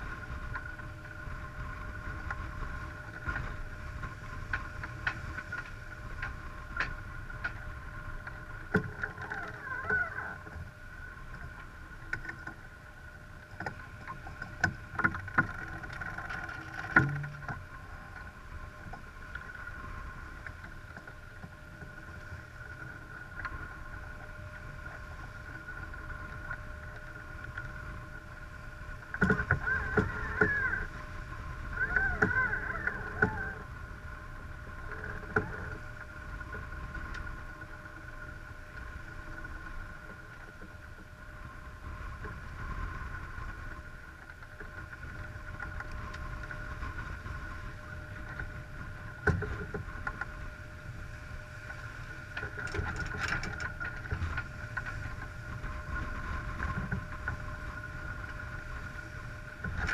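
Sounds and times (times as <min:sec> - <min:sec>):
water rushing along hull: 0:00.0 - 0:59.9
wind on microphone: 0:29.1 - 0:37.8.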